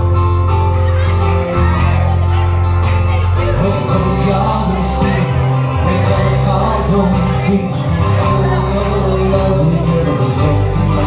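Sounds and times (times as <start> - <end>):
live band playing folk ballad: 0.0 - 11.0.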